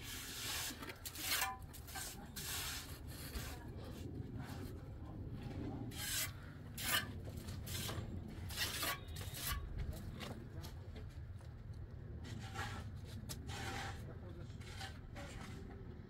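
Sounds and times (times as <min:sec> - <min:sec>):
rough scraping strokes: 0:00.0 - 0:04.8, 0:05.6 - 0:10.1, 0:12.2 - 0:15.7.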